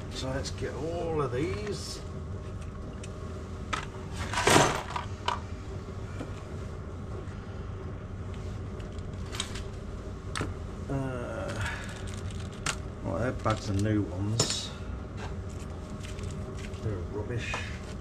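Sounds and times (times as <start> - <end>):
metal parts clattering: 4.2 - 5.1
metal parts clicking and clinking: 11.8 - 12.8.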